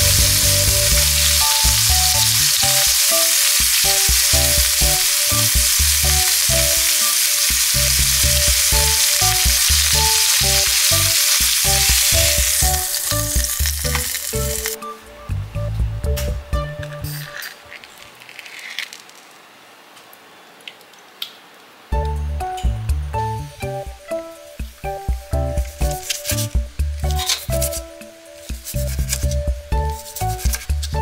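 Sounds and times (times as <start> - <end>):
steak sizzling in a frying pan: 0.0 - 14.8.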